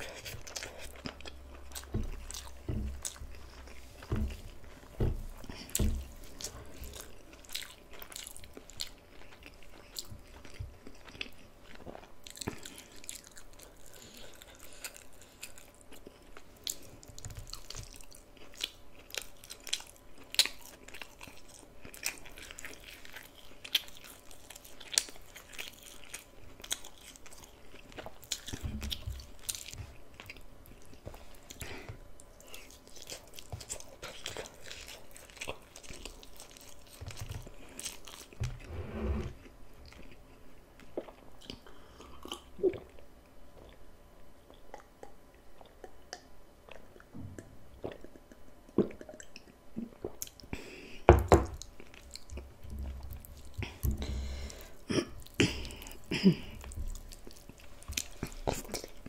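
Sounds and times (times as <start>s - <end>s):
chewing with crisp crunches: 0.0s - 38.7s, 39.4s - 59.0s
wet mouth clicks: 44.7s - 50.4s.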